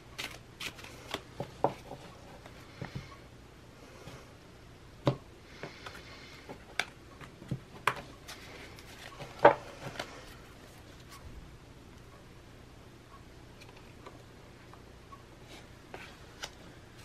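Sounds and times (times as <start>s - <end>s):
playing cards sliding: 0.2s - 1.3s.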